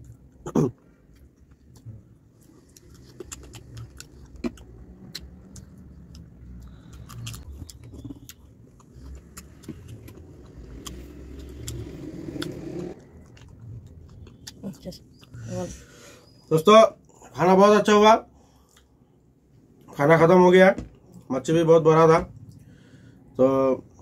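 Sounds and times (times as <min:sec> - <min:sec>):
low steady rumble: 0:00.0 - 0:15.9.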